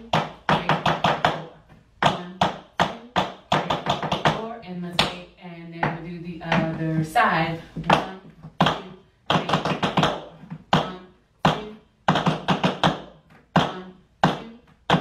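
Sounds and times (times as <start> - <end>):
tap shoes on wooden floor: 0.0 - 5.2, 5.8 - 7.0.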